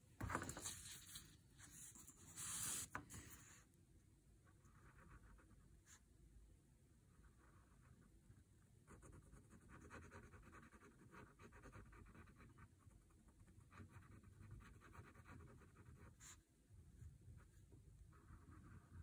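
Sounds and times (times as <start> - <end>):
pen scratching on paper: 8.9 - 16.4, 18.1 - 19.0.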